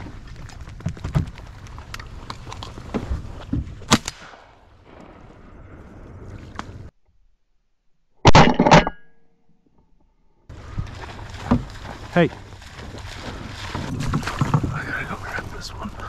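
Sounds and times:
sharp crack: 3.8s - 5.3s
shotgun blast: 3.9s - 4.6s
rustling in dry grass: 10.5s - 16.0s.

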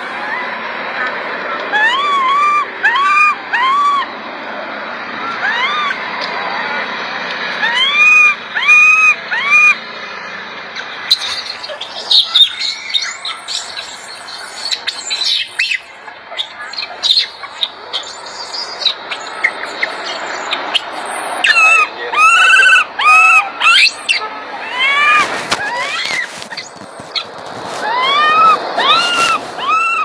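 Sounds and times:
infant monkey loud cries: 1.7s - 4.1s, 5.2s - 6.0s, 7.6s - 9.8s, 11.1s - 30.0s
infant monkey chirps and squeaks: 11.1s - 30.0s.

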